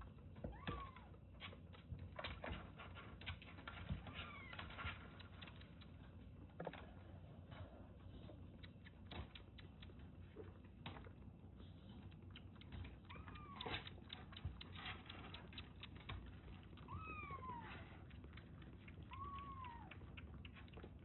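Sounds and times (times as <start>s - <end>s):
kitten suckling from bottle: 8.3s - 21.0s
kitten mewing: 13.0s - 14.7s, 19.0s - 20.2s.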